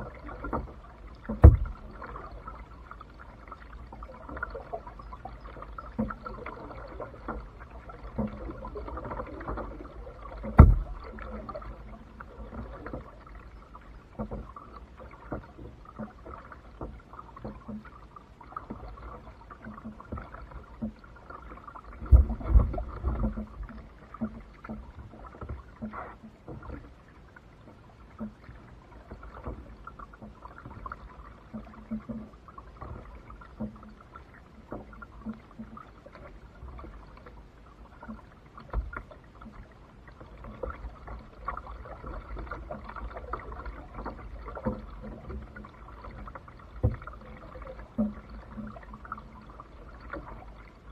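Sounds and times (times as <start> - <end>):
paddle dipping and dripping: 0.0 - 50.9
knocks against kayak hull: 0.5 - 2.0, 10.4 - 11.2, 22.0 - 23.5, 46.8 - 47.1
heavy thump: 1.3 - 1.8, 10.5 - 11.0.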